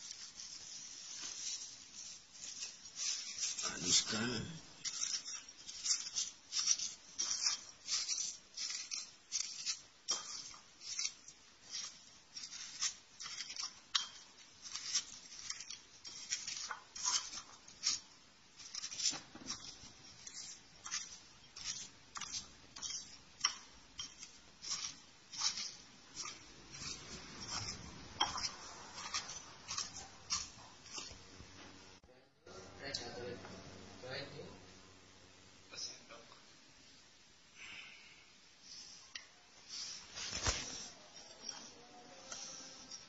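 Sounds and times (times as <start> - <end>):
metal spoon scraping ceramic bowl: 4.8 - 31.2.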